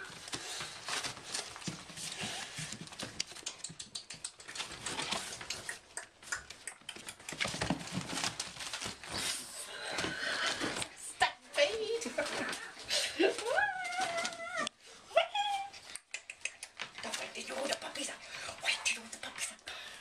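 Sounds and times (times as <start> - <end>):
puppy claws scrabbling on paper: 0.0 - 9.5, 11.6 - 14.7, 16.3 - 18.1.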